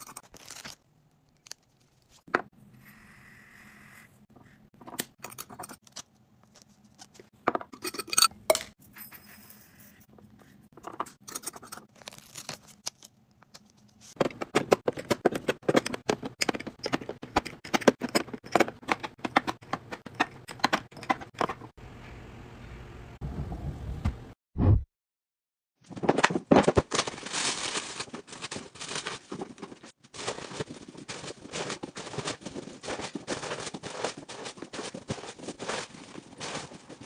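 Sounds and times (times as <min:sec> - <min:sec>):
glass jars clinking: 0:07.5 - 0:09.4.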